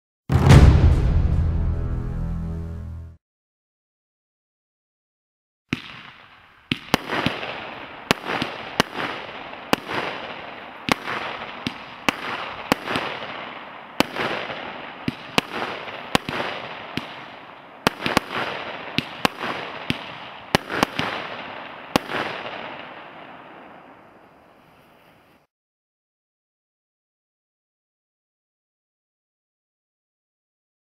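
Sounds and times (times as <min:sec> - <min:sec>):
firework bangs: 0:00.3 - 0:01.4, 0:05.7 - 0:25.5.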